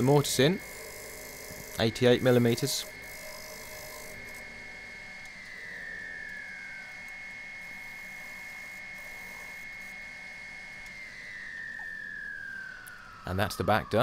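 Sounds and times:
turning tool cutting wood: 0.0 - 4.8
wood lathe whine: 0.0 - 14.0.

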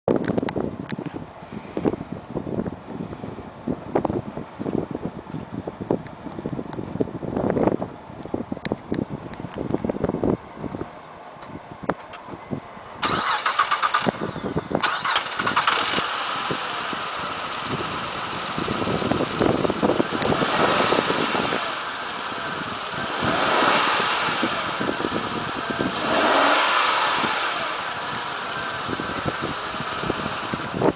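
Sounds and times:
car engine running: 11.8 - 30.9
starter motor cranking: 13.0 - 16.6.

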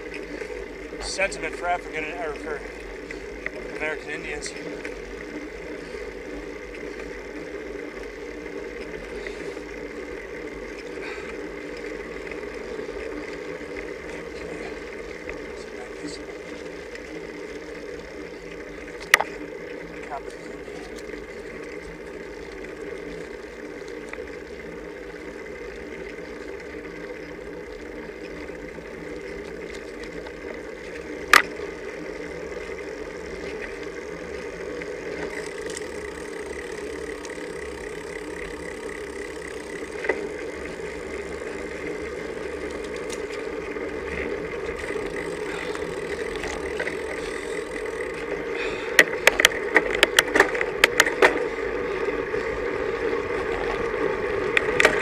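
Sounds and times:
bicycle tyre hiss: 44.8 - 49.2.

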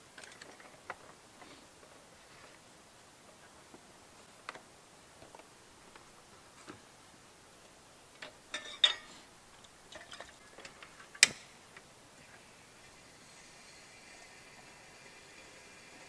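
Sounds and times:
camp cookware clinking: 8.2 - 11.6.

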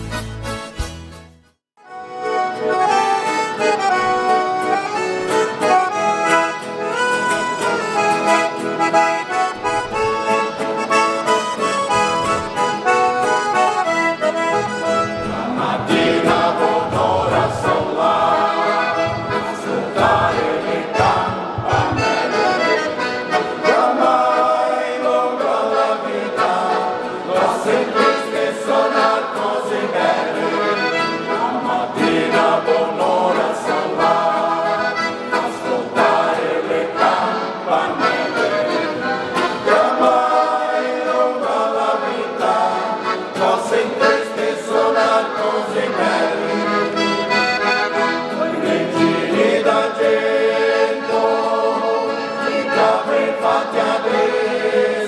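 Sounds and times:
acoustic guitar accompaniment: 0.0 - 55.0
piano accordion folk melody: 0.0 - 55.0
mixed choir singing: 14.8 - 55.0.

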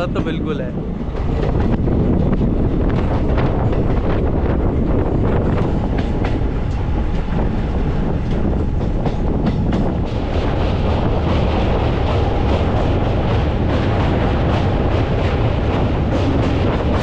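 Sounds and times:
train rumbling at speed: 0.0 - 17.0.

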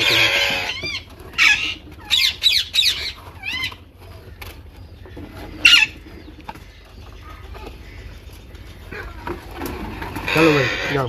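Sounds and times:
parakeet squawking: 0.0 - 3.9, 5.6 - 6.0, 10.2 - 11.0.

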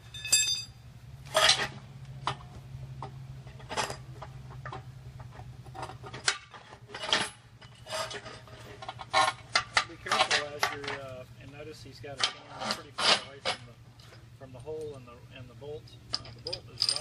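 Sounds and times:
metal rods clinking against tubing: 0.0 - 1.7, 16.1 - 17.0
steady low hum: 0.0 - 17.0.

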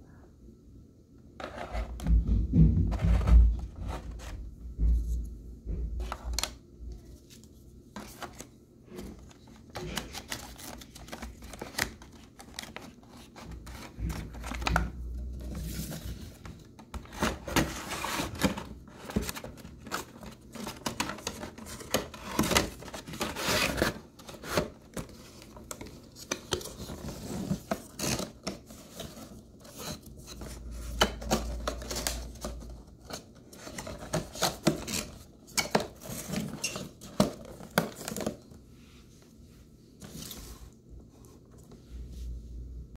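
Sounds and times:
packaging handled clicks and rustling: 6.0 - 38.6.

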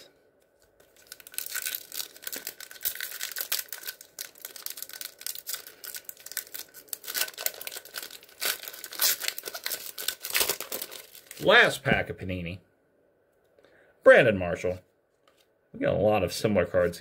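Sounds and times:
foil wrapper tearing and crinkling: 0.8 - 11.5.

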